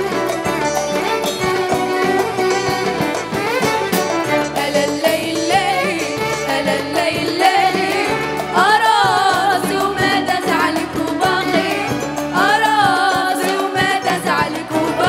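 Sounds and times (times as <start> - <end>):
backing music with steady beat: 0.0 - 15.0
women singing into microphones: 4.3 - 15.0.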